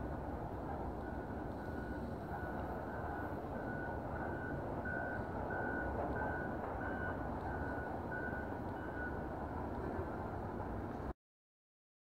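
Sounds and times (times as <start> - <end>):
reversing alarm beeping: 1.0 - 9.3.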